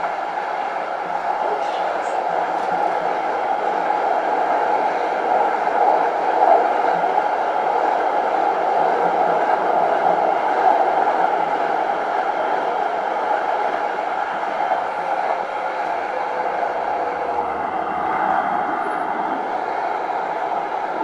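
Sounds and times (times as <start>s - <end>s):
tram running on track: 0.0s - 21.0s.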